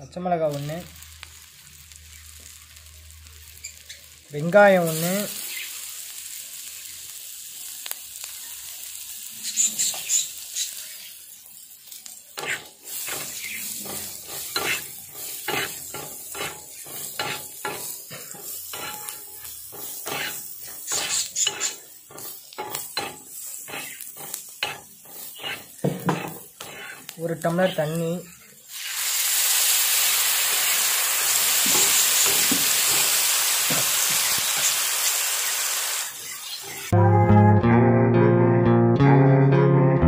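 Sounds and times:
onions sizzling in hot oil: 0.0s - 37.0s
metal spatula scraping pan: 12.4s - 28.4s.

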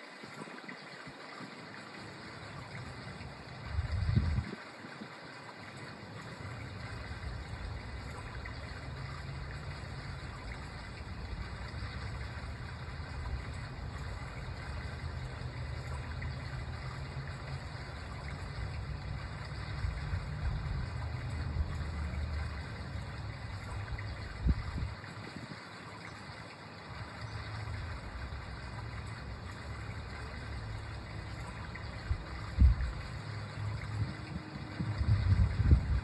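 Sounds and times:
steady low rumble: 3.4s - 4.5s, 6.6s - 25.0s, 27.4s - 36.0s.

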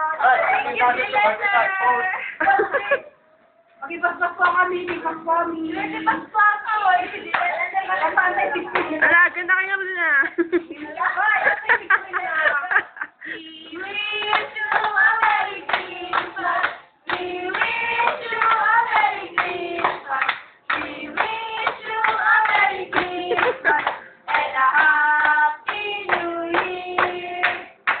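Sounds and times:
young voices singing together: 3.8s - 9.0s, 13.4s - 28.0s
hands clapping: 7.3s - 9.1s, 13.7s - 28.0s.

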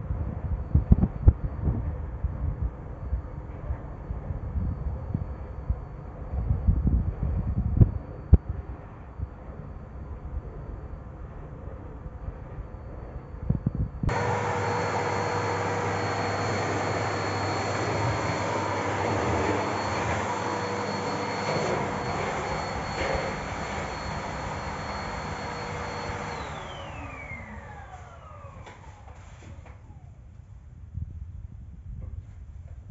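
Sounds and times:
vacuum cleaner running: 14.0s - 30.2s
motor spinning down: 14.1s - 29.1s.

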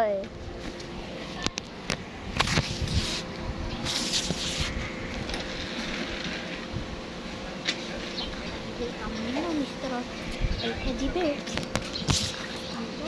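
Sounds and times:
steady low rumble: 0.2s - 12.0s
phone microphone handling rustle: 0.6s - 6.6s.

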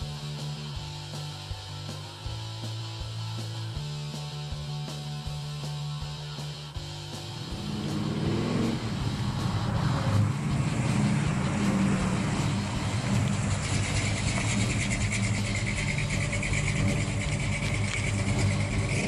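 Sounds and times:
car engine driving past: 7.2s - 19.0s.

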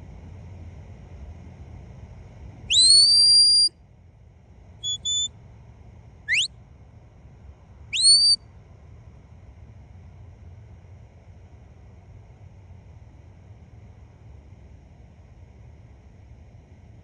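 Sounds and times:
high clear whistles: 2.7s - 3.7s, 4.8s - 5.3s, 6.3s - 6.5s, 7.9s - 8.4s.

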